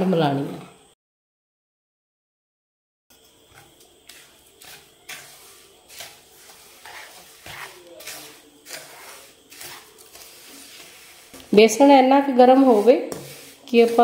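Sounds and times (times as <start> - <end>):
wooden spatula scraping steel pan: 3.5 - 14.0.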